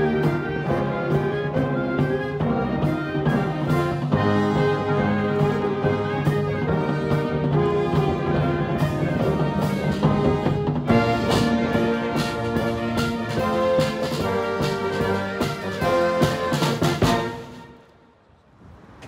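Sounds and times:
military brass band playing: 0:00.0 - 0:17.9
drum strikes: 0:07.0 - 0:17.6.

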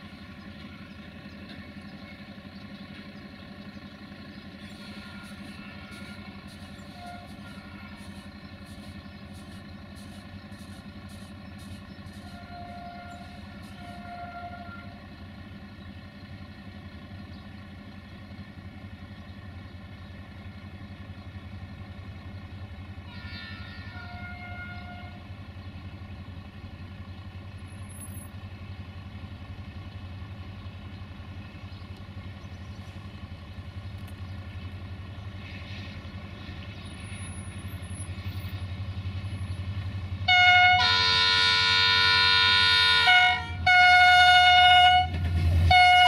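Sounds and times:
diesel locomotive engine drone: 0:00.0 - 0:46.0.

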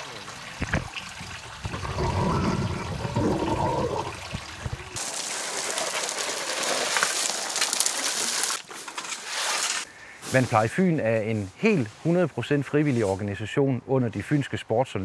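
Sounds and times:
stream running over stones: 0:00.0 - 0:09.9.

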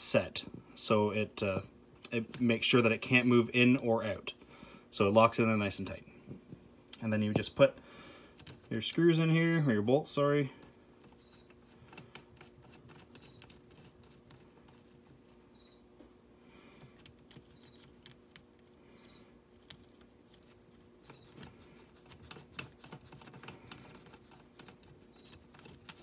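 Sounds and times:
metal-on-metal scraping: 0:11.1 - 0:15.1, 0:20.3 - 0:26.0.

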